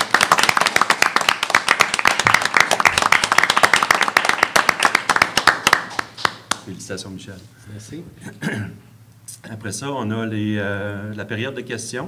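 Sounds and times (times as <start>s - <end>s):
people clapping: 0.0s - 6.7s.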